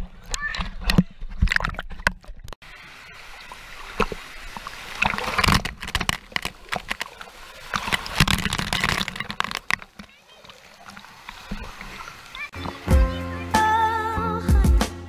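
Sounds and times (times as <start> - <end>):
dull underwater wash: 0.0 - 12.9
heavy splashing and pouring water: 2.6 - 13.0.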